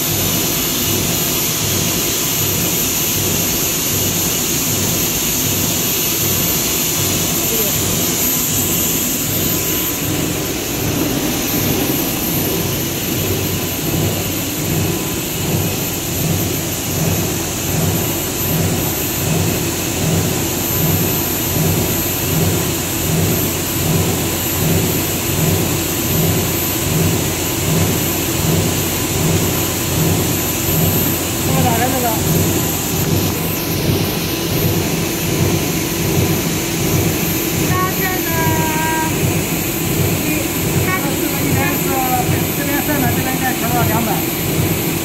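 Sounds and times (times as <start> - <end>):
high machine whine: 0.0 - 45.0
low pulsing hum: 0.0 - 45.0
machine and air rush: 4.4 - 20.5, 26.9 - 45.0.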